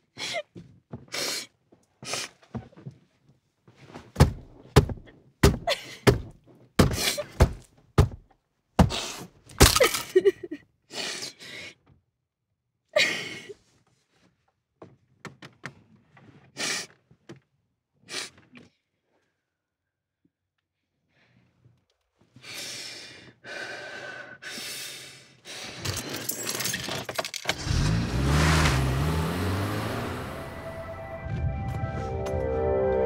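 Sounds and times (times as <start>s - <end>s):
woman sobbing and gasping: 5.6s - 6.2s, 8.9s - 11.8s, 13.0s - 13.6s.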